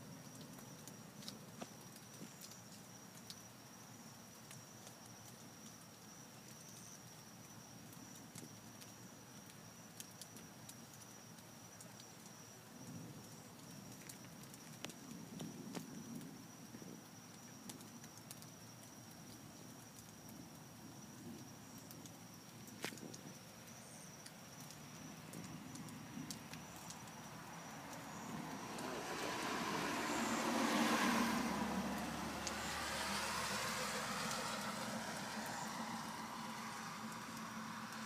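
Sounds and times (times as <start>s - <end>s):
car passing on wet road: 24.6s - 38.0s.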